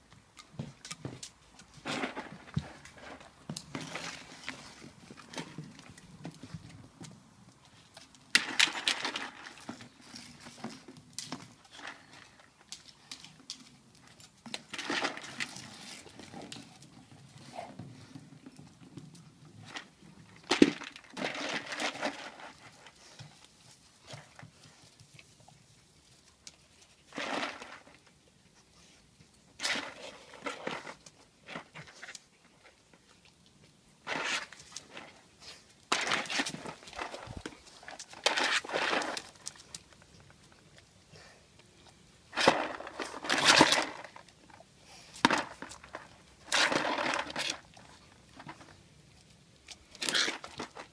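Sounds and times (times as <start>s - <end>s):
plastic toy scraping on paving: 34.0s - 39.8s, 42.4s - 44.2s, 45.2s - 47.7s, 50.0s - 50.9s.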